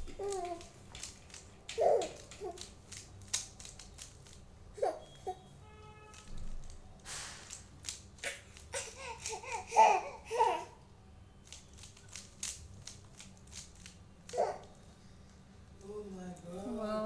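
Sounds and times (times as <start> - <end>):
puzzle cube clicking: 0.0 - 4.4, 11.4 - 14.4
child laughing and babbling: 1.8 - 2.6, 8.7 - 10.8.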